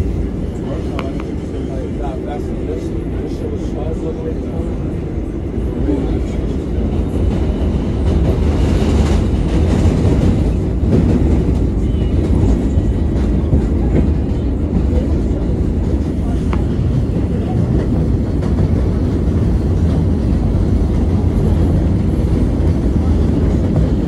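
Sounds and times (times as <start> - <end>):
subway train wheels rumbling: 0.0 - 24.0.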